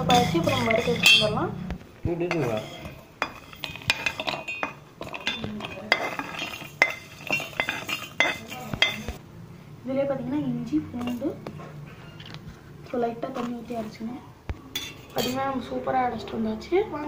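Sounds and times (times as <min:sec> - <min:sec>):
metal pan knocking on steel jar: 0:00.0 - 0:01.4.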